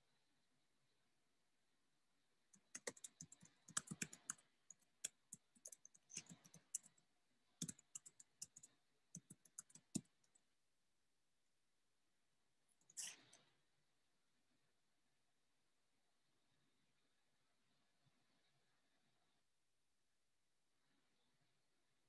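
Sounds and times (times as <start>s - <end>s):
typing on keyboard: 2.6s - 7.0s, 7.6s - 10.4s.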